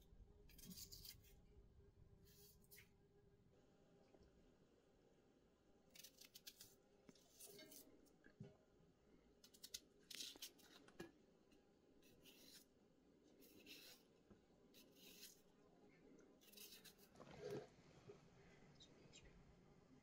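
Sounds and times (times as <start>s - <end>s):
knife scraping potato skin: 0.5s - 1.4s, 5.9s - 7.9s, 9.4s - 10.9s, 12.0s - 12.8s, 13.4s - 14.1s, 14.7s - 15.5s, 16.4s - 17.6s.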